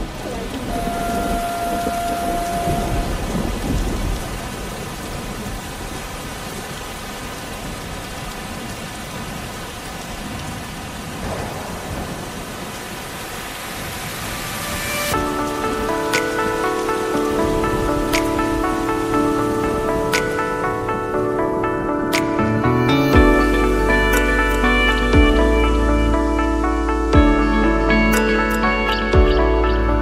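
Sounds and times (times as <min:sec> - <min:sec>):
low rumble of thunder: 0:00.0 - 0:06.1, 0:10.1 - 0:13.2
steady rain-like hiss: 0:00.0 - 0:30.0
music: 0:15.0 - 0:30.0.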